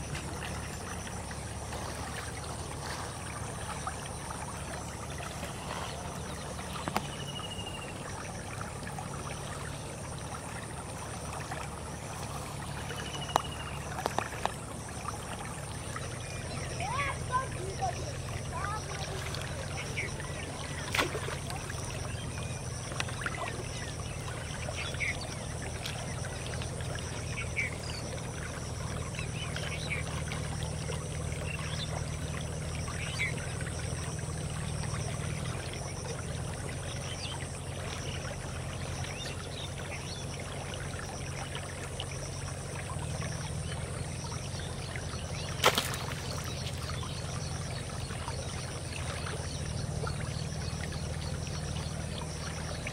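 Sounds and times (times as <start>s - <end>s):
stream flowing: 0.0s - 52.9s.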